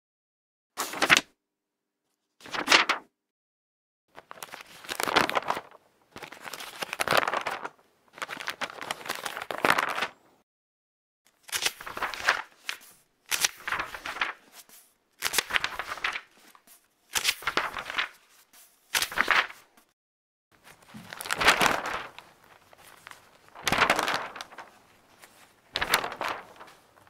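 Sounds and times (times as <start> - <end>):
book pages turning: 2.4 - 3.0, 4.2 - 10.1, 11.3 - 19.9, 20.6 - 27.0.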